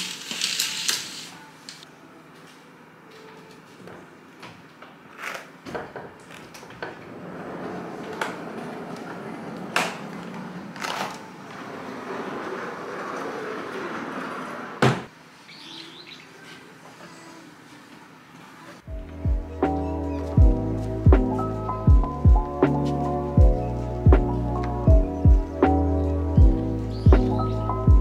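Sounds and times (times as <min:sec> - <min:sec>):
loud door thump: 0:14.8 - 0:15.1
faint bird chirps: 0:15.4 - 0:16.4.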